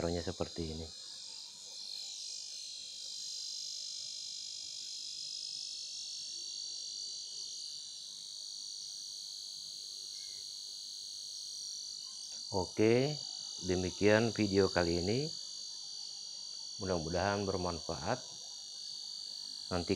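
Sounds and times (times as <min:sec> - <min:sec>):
high-pitched electronic whine: 0:00.0 - 0:09.0, 0:11.9 - 0:19.9.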